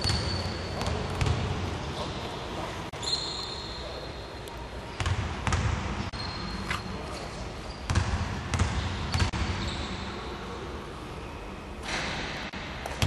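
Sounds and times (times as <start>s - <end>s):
basketball bouncing on hardwood floor: 0.0s - 1.4s.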